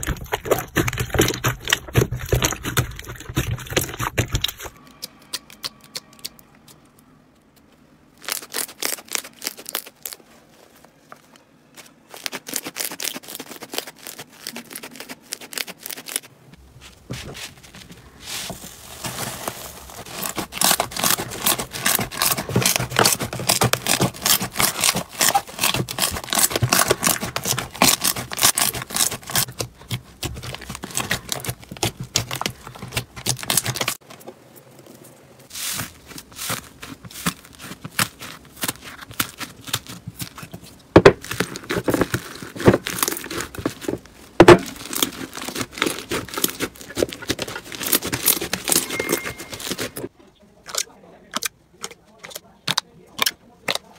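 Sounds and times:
slime crackling and popping: 8.1s - 10.8s, 12.1s - 16.3s, 18.3s - 34.0s, 35.6s - 49.9s.

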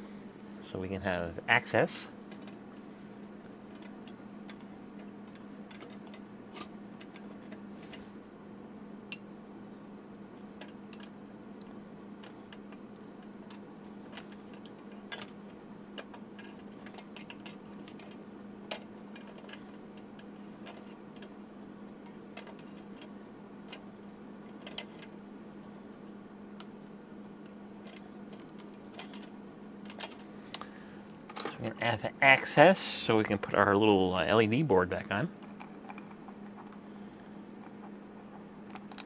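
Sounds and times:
steady low hum: 0.0s - 39.0s
small parts clicking and tapping: 2.3s - 2.6s, 3.6s - 8.0s, 10.6s - 21.4s, 22.0s - 25.1s, 27.4s - 30.7s, 31.3s - 31.6s, 35.4s - 36.9s, 37.6s - 39.0s.

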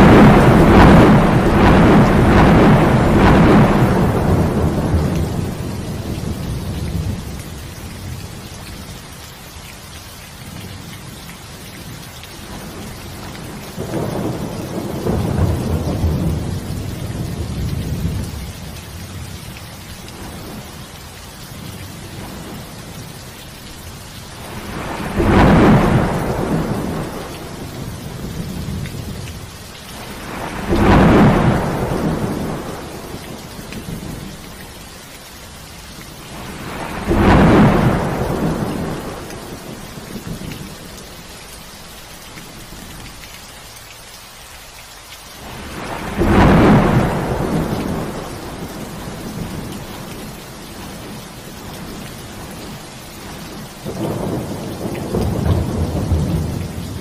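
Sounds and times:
thunder claps rumbling: 0.0s - 7.4s, 12.5s - 19.3s, 24.3s - 34.4s, 36.2s - 41.0s, 45.4s - 57.0s
steady rain: 0.0s - 57.0s.

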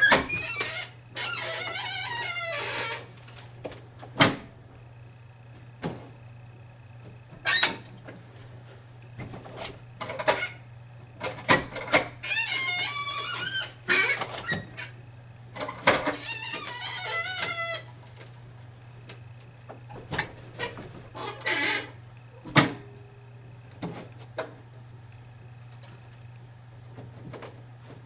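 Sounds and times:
squeaking: 0.0s - 3.1s, 16.1s - 17.9s
steady low hum: 0.0s - 28.0s.

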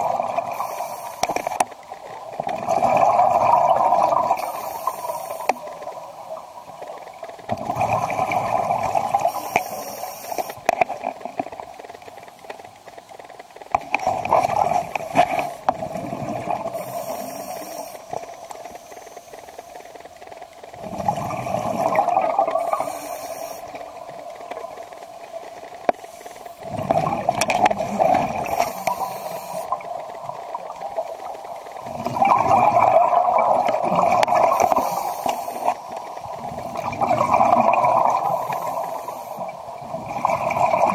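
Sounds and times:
regulator hiss: 0.0s - 2.3s, 4.3s - 6.9s, 9.0s - 10.7s, 16.5s - 20.4s, 21.7s - 26.8s, 27.8s - 31.9s, 33.9s - 36.8s, 37.8s - 40.0s
exhaled bubbles gurgling: 0.0s - 11.8s, 13.6s - 19.0s, 20.7s - 40.9s.

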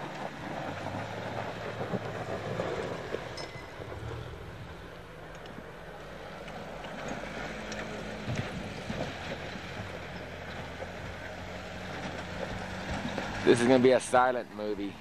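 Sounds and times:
engine running at low revs: 0.0s - 15.0s.

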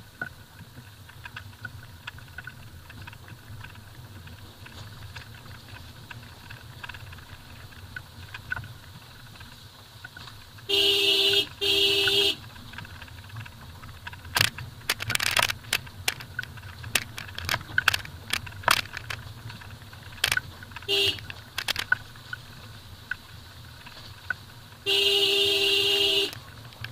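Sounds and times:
car rumbling over dirt track: 0.0s - 26.9s
clicks and rattles on stony ground: 0.0s - 26.9s
car horn blasts: 10.7s - 12.4s, 20.9s - 21.3s, 24.8s - 26.4s.

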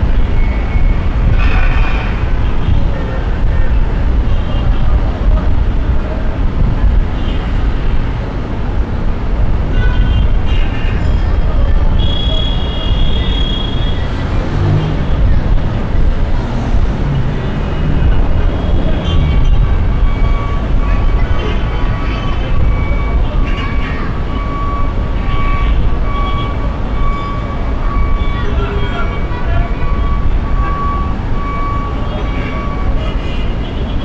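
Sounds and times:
rumble of passing vehicles: 0.0s - 34.0s
car horn: 9.7s - 10.8s, 11.9s - 14.7s.

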